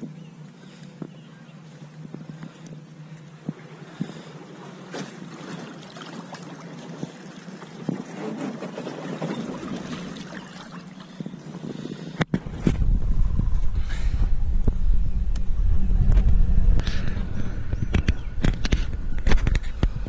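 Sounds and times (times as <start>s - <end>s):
propeller churning water: 0.0s - 20.0s
knocks and splashing: 3.5s - 10.9s
loud low rumble: 12.4s - 20.0s.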